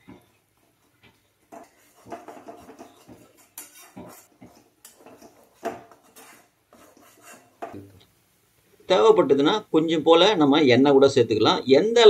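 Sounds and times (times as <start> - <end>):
spoon scraping metal pan: 1.5 - 7.8.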